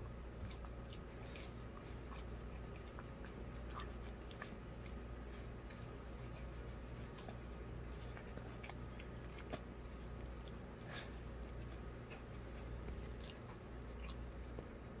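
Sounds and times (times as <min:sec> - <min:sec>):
dog licking and chewing: 0:00.4 - 0:15.0.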